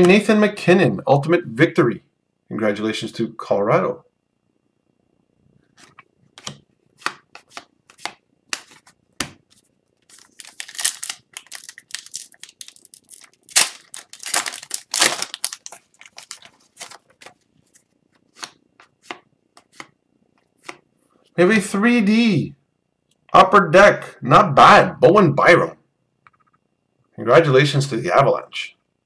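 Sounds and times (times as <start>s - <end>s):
cards snapping and flicking: 5.8s - 9.4s
foil pack tearing and crinkling: 10.0s - 17.4s.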